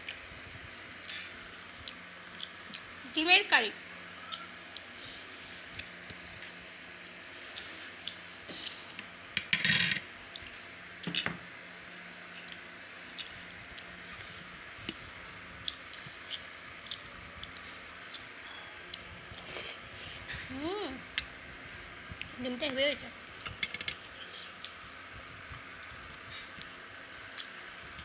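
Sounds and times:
fingers mixing food on steel plate: 23.4s - 24.8s.

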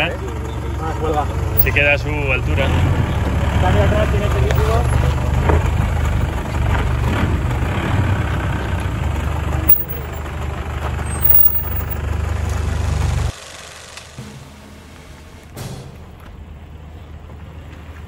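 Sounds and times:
diesel engine idling: 0.0s - 11.3s.

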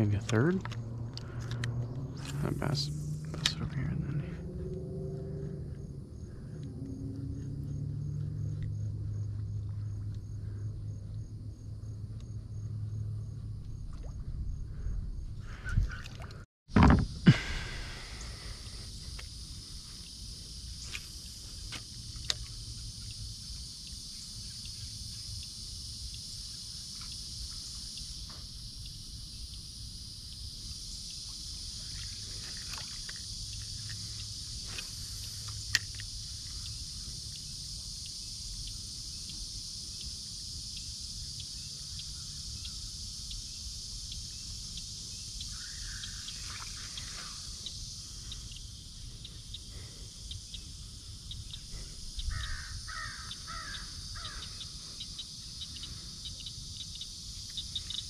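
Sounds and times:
wind and water rumble: 0.0s - 23.7s
high-pitched insect chorus: 0.0s - 58.0s.

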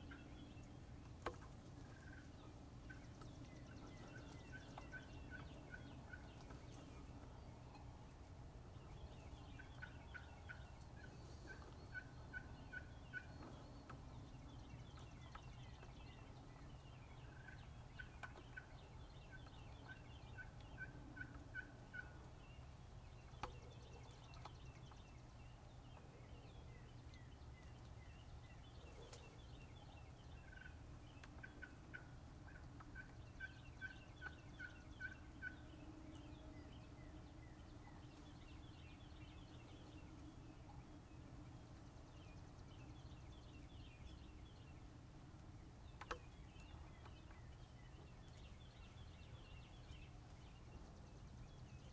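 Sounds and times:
wild turkeys calling: 0.0s - 8.2s, 8.8s - 25.0s, 28.6s - 41.0s.

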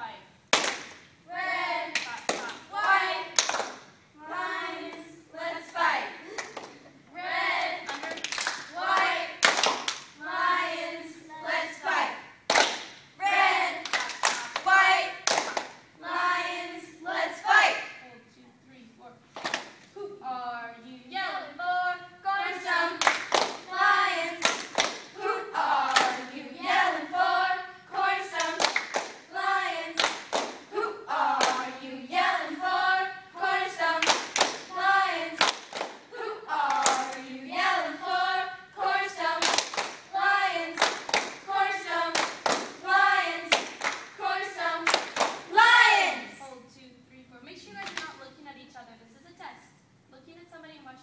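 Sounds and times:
girls chanting in unison: 0.0s - 6.5s, 7.1s - 18.1s, 20.0s - 46.5s
sharp hand claps: 0.5s - 1.1s, 3.4s - 3.8s, 7.9s - 10.1s, 12.5s - 13.0s, 15.3s - 15.8s, 24.4s - 25.1s, 28.5s - 29.2s, 30.0s - 30.6s, 34.0s - 34.7s, 35.4s - 36.0s, 39.4s - 40.0s, 40.8s - 41.4s, 43.5s - 44.1s, 44.9s - 45.4s.

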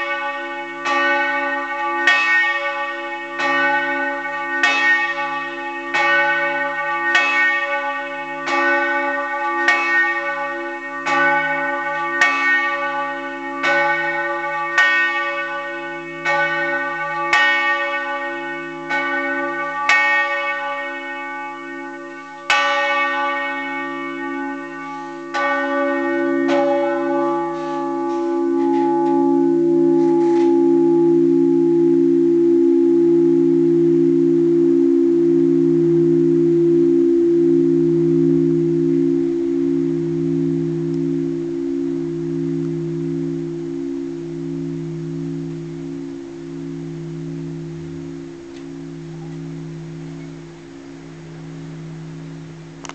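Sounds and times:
church bell tolling: 0.0s - 52.9s
low ringing hum: 24.2s - 52.9s.

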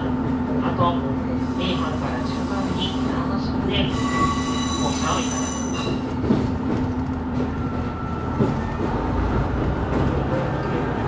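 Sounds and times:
train wheels squealing: 3.8s - 6.2s.

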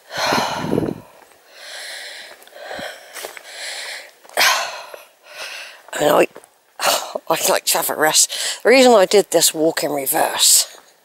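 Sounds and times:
person breathing hard: 0.0s - 5.8s.

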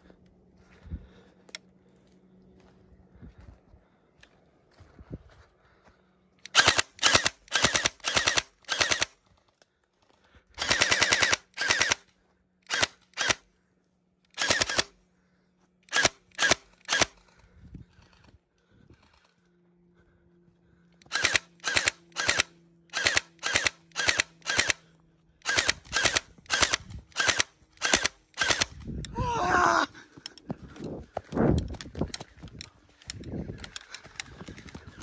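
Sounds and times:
toy gun rapid bursts: 6.4s - 9.2s, 10.6s - 13.4s, 14.3s - 15.0s, 15.9s - 17.2s, 21.1s - 24.8s, 25.4s - 28.8s.

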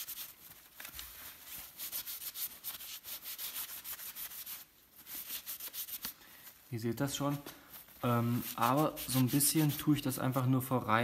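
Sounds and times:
wiping strokes on plastic: 0.0s - 6.6s, 7.2s - 10.6s.

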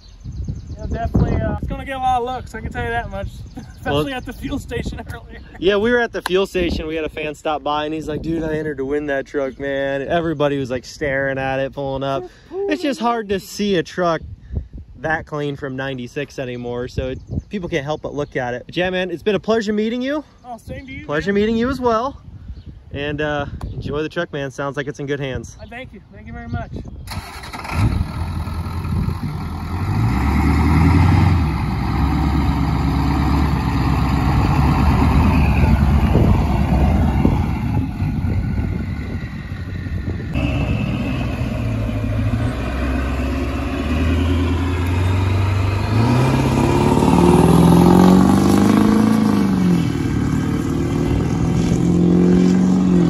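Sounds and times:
pickup truck engine driving off: 27.1s - 53.0s.

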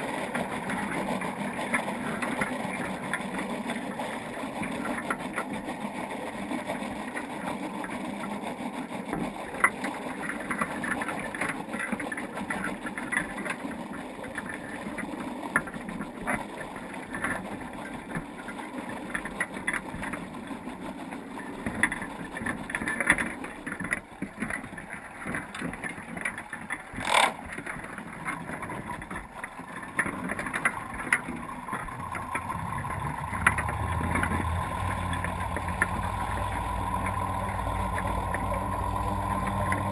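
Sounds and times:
faint clicks and taps: 9.1s - 39.9s
boat motor hum: 23.5s - 39.9s.

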